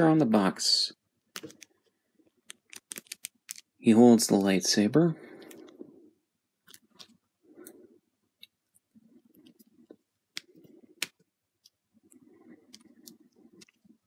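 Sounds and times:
fingers rubbing plastic figure: 0:01.3 - 0:03.7, 0:08.4 - 0:14.0.

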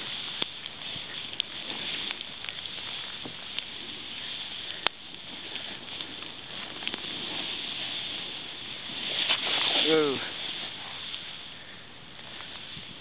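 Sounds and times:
snowboard hissing on snow: 0:00.0 - 0:02.2, 0:02.8 - 0:13.0.

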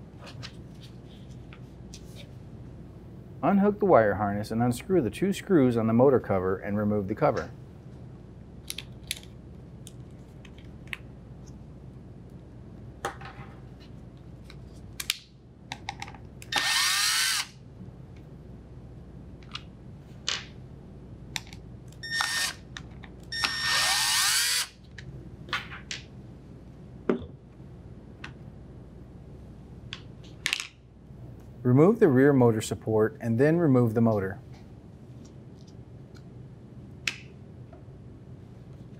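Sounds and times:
clicks and knocks of parts: 0:14.4 - 0:16.6
cordless drill whirring: 0:16.5 - 0:17.5, 0:22.0 - 0:22.6, 0:23.3 - 0:24.7.

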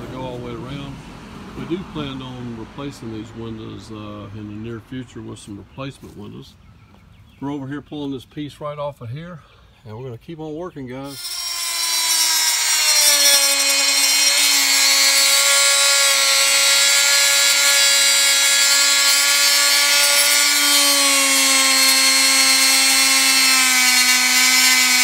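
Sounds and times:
multi-tool cutting wood: 0:11.1 - 0:25.0.

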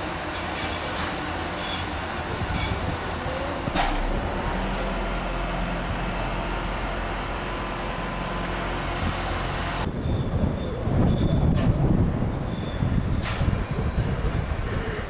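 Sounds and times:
diesel engine hum: 0:00.0 - 0:15.0
train rolling noise: 0:00.0 - 0:15.0
sharp clank: 0:03.7 - 0:04.2.

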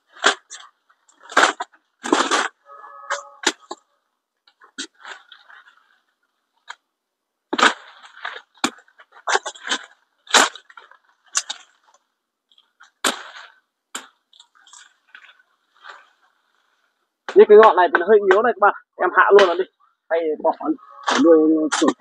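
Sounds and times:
leaves rustling: 0:20.3 - 0:22.0.

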